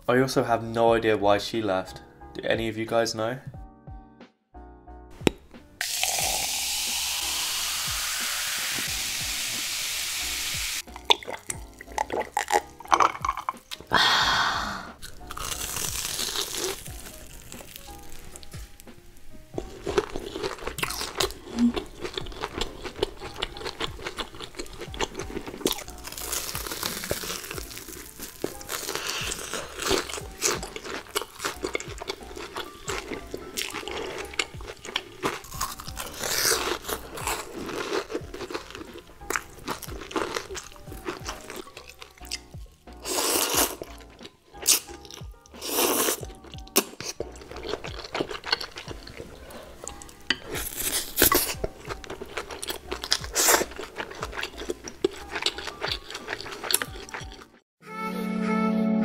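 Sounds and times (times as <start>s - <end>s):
background music: 0.0s - 59.0s
crunchy food being chewed: 10.8s - 13.9s, 15.0s - 57.6s.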